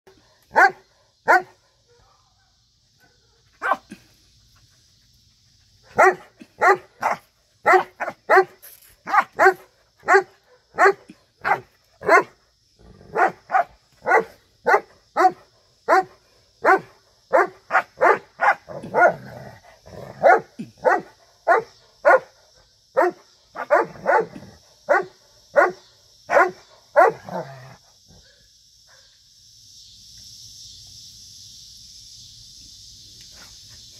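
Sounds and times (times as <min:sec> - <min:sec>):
dog barking: 0:00.5 - 0:02.5, 0:03.2 - 0:03.9, 0:05.9 - 0:08.5, 0:09.1 - 0:12.3, 0:13.1 - 0:19.2, 0:20.2 - 0:22.3, 0:23.0 - 0:27.3.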